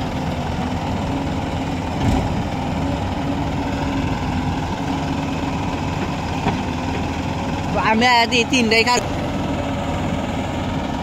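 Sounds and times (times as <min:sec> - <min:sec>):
diesel engines running: 0:00.0 - 0:11.0.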